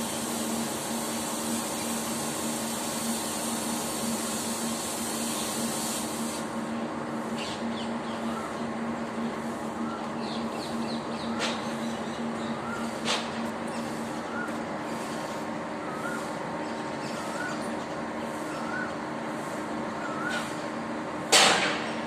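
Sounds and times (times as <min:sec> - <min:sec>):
high hiss: 0:00.0 - 0:06.6
steady background hum: 0:00.0 - 0:22.0.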